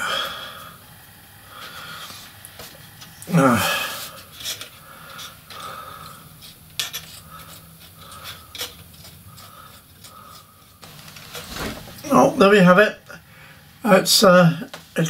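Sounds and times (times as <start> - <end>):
paintbrush scratching and rubbing: 10.9 - 12.6.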